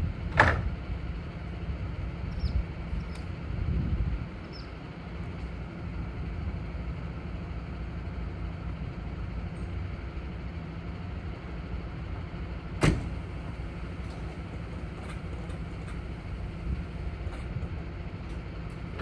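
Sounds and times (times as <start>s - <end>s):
diesel truck engine idling: 0.0s - 19.0s
truck door slamming: 12.8s - 13.4s.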